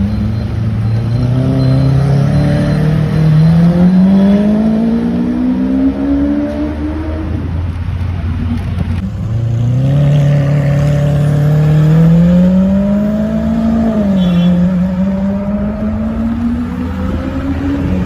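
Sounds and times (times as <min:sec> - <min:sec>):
sports car engine accelerating: 0:08.5 - 0:18.0.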